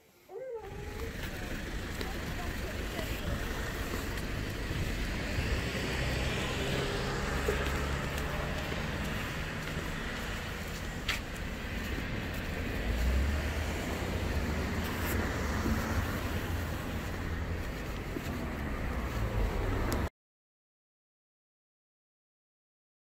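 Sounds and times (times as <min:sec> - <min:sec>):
passing cars rumbling: 0:00.6 - 0:20.1.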